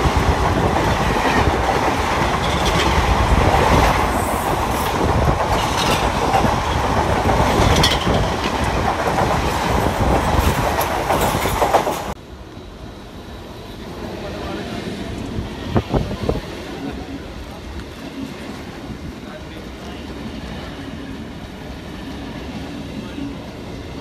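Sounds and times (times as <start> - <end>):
wheels clacking over rail joints: 0.0 - 12.2
train coaches rumbling past: 0.0 - 24.0.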